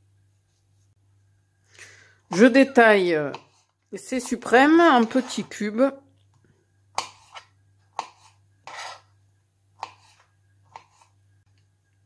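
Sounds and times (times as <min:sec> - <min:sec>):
knife scraping board: 0:03.3 - 0:05.6, 0:07.0 - 0:09.1, 0:09.8 - 0:11.2.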